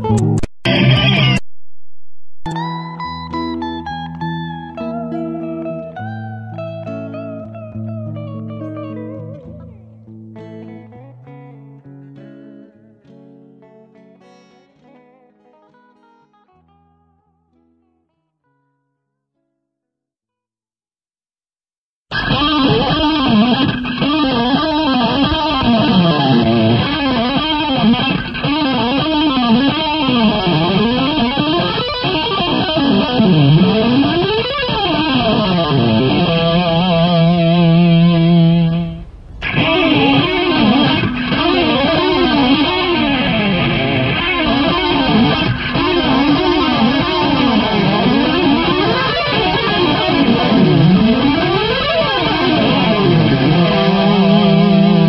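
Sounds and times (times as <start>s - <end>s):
electric guitar held chord: 0.0s - 1.4s, 22.1s - 55.0s
electric guitar fast runs: 0.1s - 1.4s, 22.1s - 55.0s.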